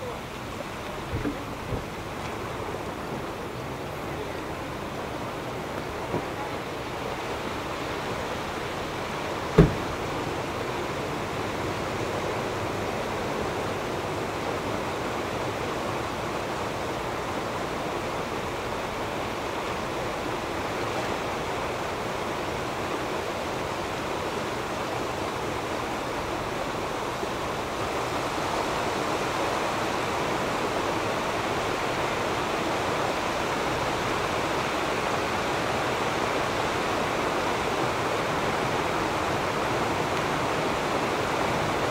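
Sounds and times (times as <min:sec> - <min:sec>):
floodwater rushing: 0:00.0 - 0:41.9
sharp knock: 0:09.6 - 0:09.9.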